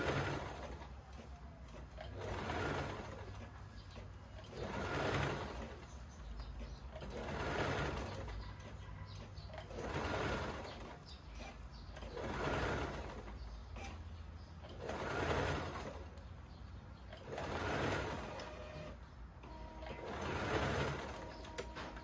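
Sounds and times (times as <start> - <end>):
sewing machine stitching: 0.0 - 22.0.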